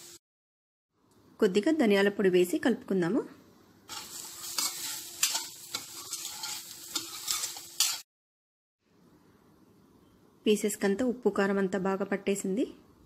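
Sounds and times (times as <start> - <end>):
frying sizzle: 0.0 - 0.2, 3.9 - 8.1
spoon scraping a pan: 3.9 - 8.1.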